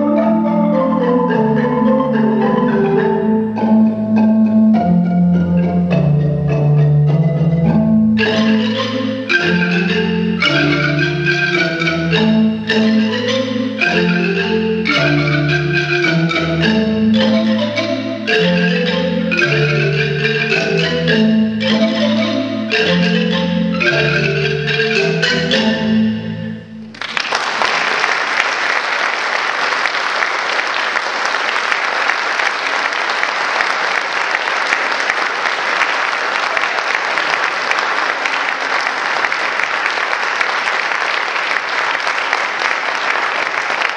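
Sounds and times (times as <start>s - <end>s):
marimba ensemble playing: 0.0s - 27.0s
audience applause: 26.9s - 43.9s.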